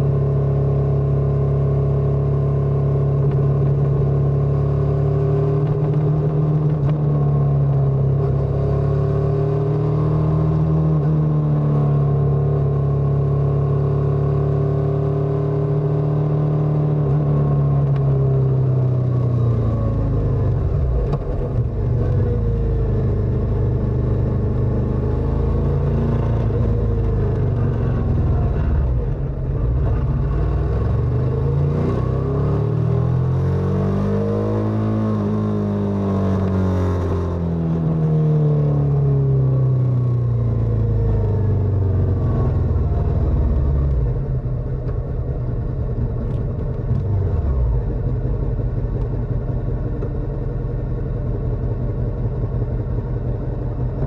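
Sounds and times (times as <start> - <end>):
motorcycle engine running: 17.4 - 31.7, 35.2 - 54.0.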